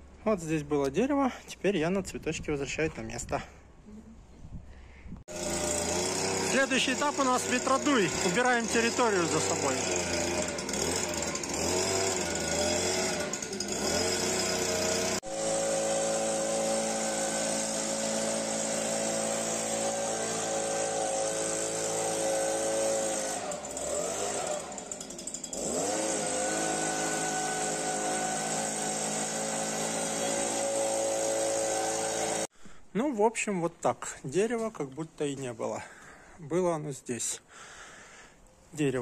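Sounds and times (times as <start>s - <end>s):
leaf blower engine whine: 5.3s - 32.5s.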